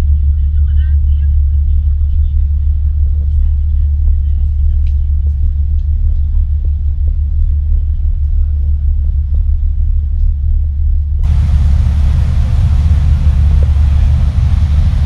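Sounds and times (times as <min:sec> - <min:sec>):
ferry engines rumbling: 0:11.2 - 0:15.0
wind and sea hiss: 0:11.2 - 0:15.0.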